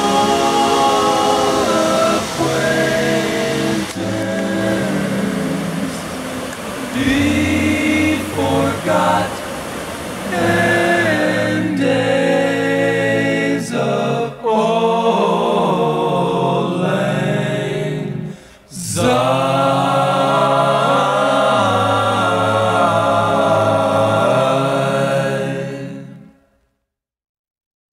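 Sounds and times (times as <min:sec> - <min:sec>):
voices singing held chords: 0:00.0 - 0:26.4.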